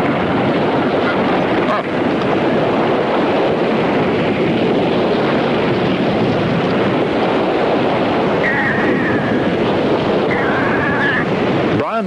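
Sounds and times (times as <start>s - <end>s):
surf breaking on shore: 0.0s - 12.0s.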